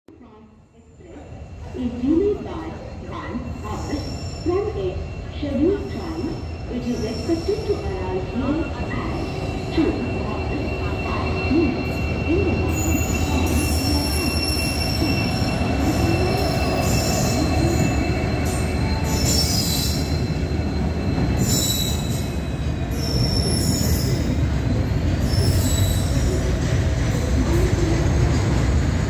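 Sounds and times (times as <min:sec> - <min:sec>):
train wheels rumbling on rail: 0:01.6 - 0:29.0
high-pitched wheel squeal: 0:09.0 - 0:24.3, 0:25.2 - 0:26.2.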